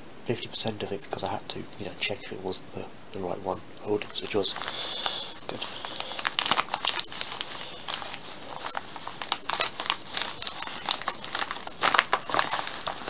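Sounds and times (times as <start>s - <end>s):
paper envelope crinkling: 3.8s - 13.0s.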